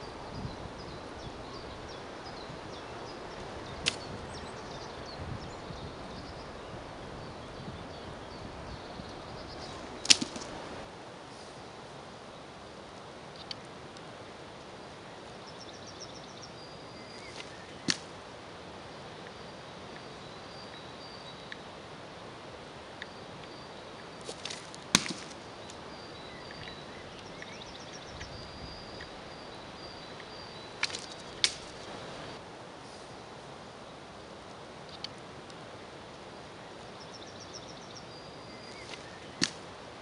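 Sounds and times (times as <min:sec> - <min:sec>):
birds chirping faintly: 0:00.0 - 0:40.0
dart striking with sharp crack: 0:38.9 - 0:39.6.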